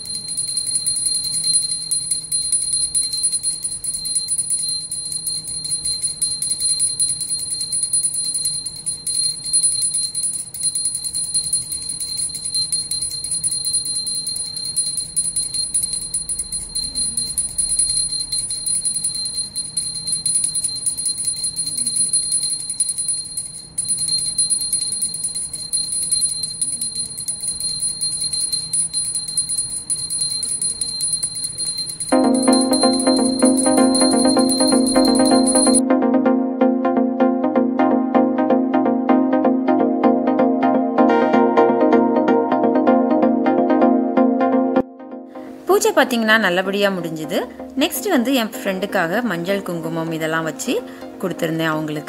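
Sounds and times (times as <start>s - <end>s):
hand bell ringing rapidly: 0.0s - 35.8s.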